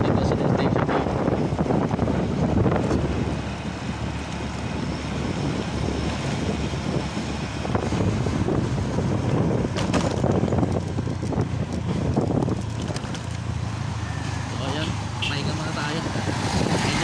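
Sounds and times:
wind buffeting microphone: 0.0s - 14.0s, 14.8s - 17.0s
motorcycle engine running: 7.9s - 14.2s.

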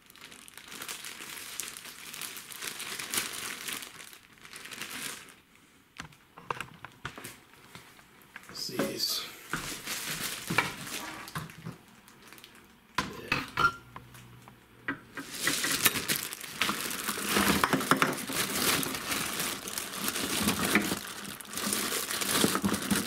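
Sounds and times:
plastic bag crinkling: 0.0s - 5.5s, 8.6s - 13.0s, 15.1s - 23.0s.

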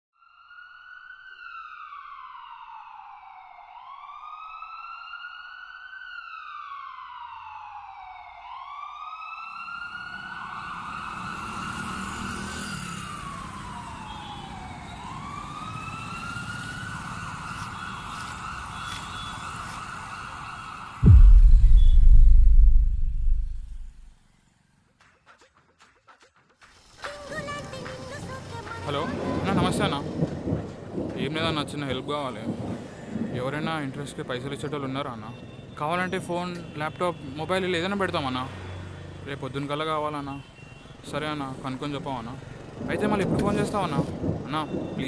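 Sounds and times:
siren wailing: 0.2s - 24.1s
low street traffic rumble: 27.4s - 45.0s.

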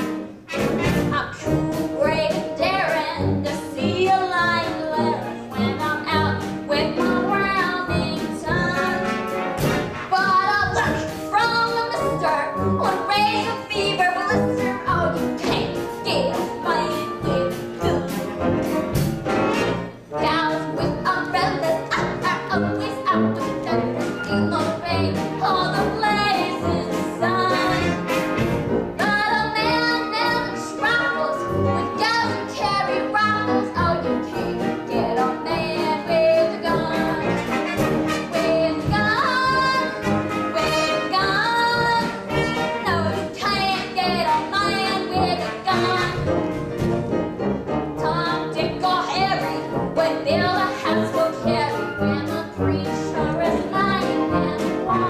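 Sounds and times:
orchestra led by brass: 0.0s - 55.0s.

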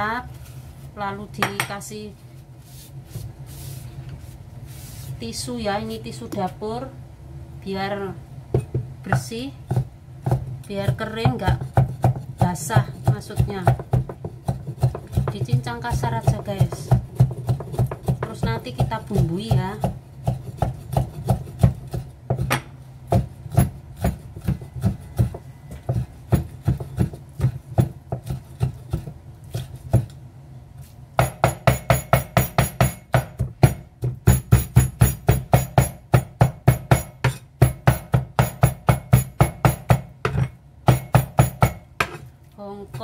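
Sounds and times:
cleaver chopping on wooden board: 11.2s - 29.1s, 31.2s - 42.2s.

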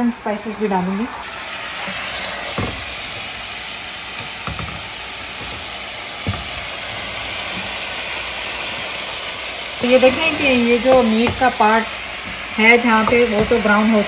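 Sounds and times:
meat sizzling in a frying pan: 0.0s - 14.0s
utensils knocking against pan: 2.5s - 3.4s, 4.1s - 7.8s, 9.8s - 14.0s.

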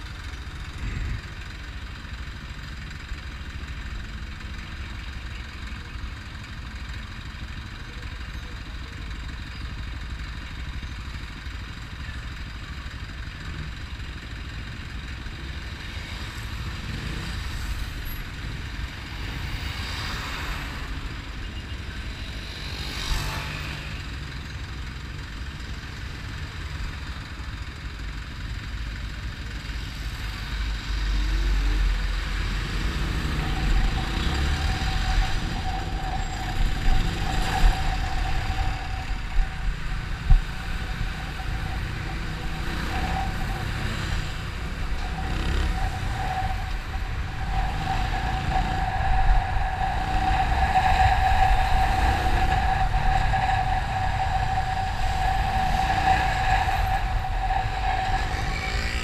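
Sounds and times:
motorcycle engine idling: 0.0s - 16.7s, 24.0s - 29.9s
low traffic rumble: 0.0s - 59.0s
other vehicle engines: 0.0s - 59.0s
passing traffic: 0.0s - 59.0s.

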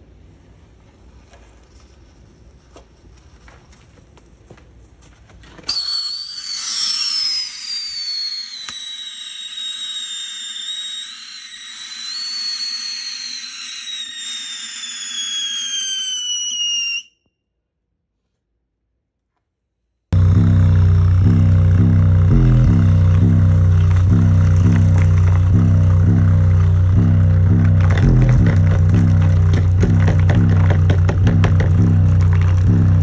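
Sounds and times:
whistling firework: 5.6s - 17.4s.

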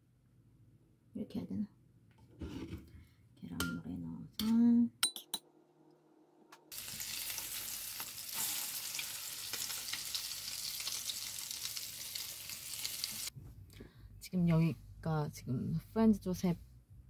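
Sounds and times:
patties sizzling and popping in oil: 6.7s - 13.3s.

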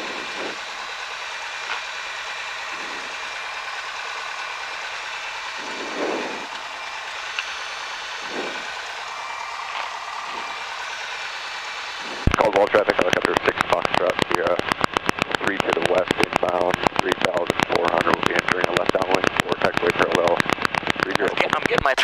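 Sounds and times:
piston aircraft engine humming: 0.0s - 22.0s.

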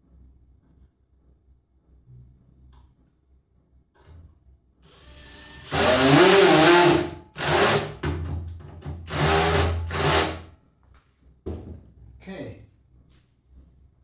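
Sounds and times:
cordless drill motor whining: 4.9s - 7.8s.

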